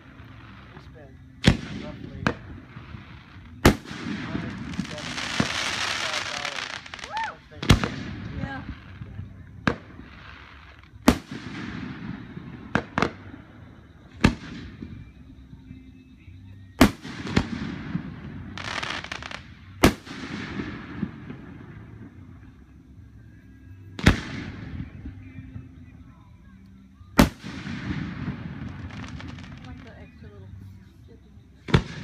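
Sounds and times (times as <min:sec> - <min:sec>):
hissing crackling firework tails: 0:00.0 - 0:15.4, 0:16.8 - 0:22.9, 0:27.2 - 0:32.0
firework shells booming: 0:01.4 - 0:08.7, 0:09.6 - 0:15.0, 0:16.8 - 0:22.4, 0:24.0 - 0:25.1.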